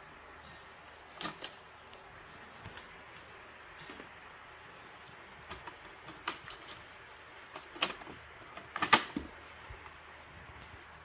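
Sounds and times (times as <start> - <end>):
cassette clicks and knocks: 1.2 - 1.6, 7.4 - 9.9
cassette door shutting: 7.7 - 9.4.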